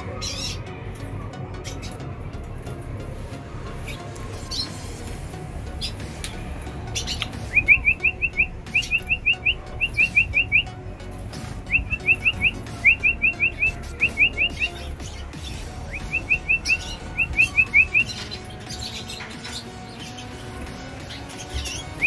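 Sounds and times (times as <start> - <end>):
finch chirping: 6.9 - 10.7, 11.5 - 22.0.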